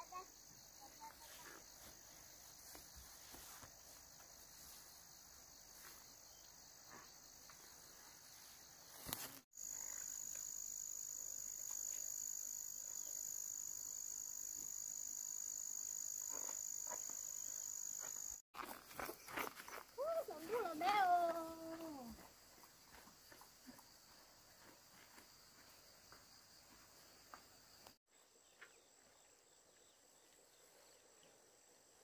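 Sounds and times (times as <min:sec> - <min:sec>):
insects chorus: 0:00.0 - 0:32.0
footsteps rustling through grass: 0:01.1 - 0:06.2, 0:07.5 - 0:09.5, 0:18.6 - 0:22.0.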